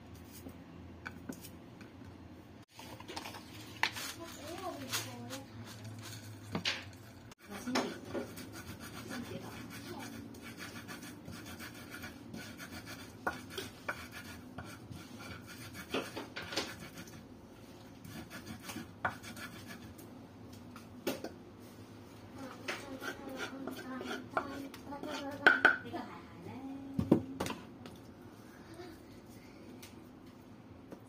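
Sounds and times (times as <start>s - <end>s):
utensil scraping wooden mortar: 3.2s - 6.6s, 7.4s - 17.2s, 18.0s - 19.8s, 22.8s - 25.3s.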